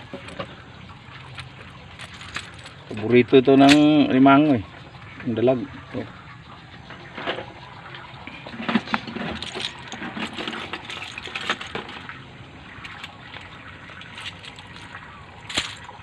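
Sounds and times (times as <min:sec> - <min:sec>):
steady watery hiss: 0:00.0 - 0:10.7
wire net clicking and rattling: 0:01.2 - 0:04.1, 0:08.6 - 0:12.2, 0:12.8 - 0:16.0.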